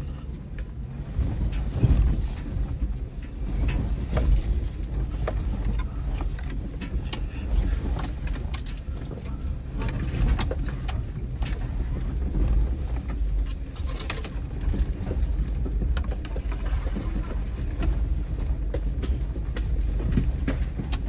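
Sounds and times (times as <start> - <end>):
vehicle bumping clicks and knocks: 0.0 - 21.0
vehicle engine running low: 0.0 - 21.0.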